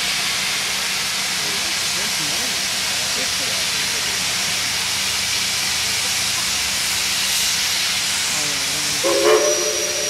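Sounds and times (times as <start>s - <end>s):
steam locomotive venting steam: 0.0s - 10.0s.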